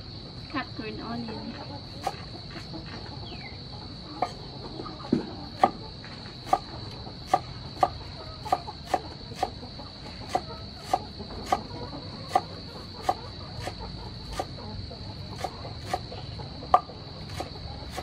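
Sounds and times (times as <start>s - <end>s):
cleaver chopping on wooden board: 7.3s - 9.6s, 10.3s - 11.7s, 12.3s - 14.5s, 15.4s - 16.1s, 16.7s - 18.0s.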